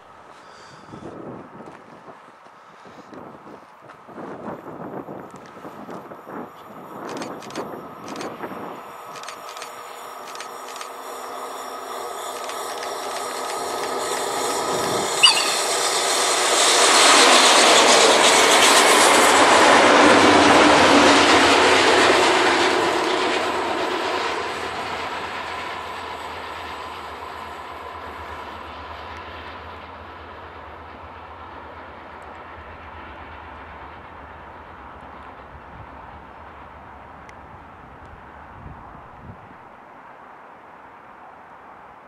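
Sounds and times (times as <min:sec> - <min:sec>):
train wheels clattering on rails: 0:05.3 - 0:23.8
brief sharp sound: 0:15.2 - 0:16.1.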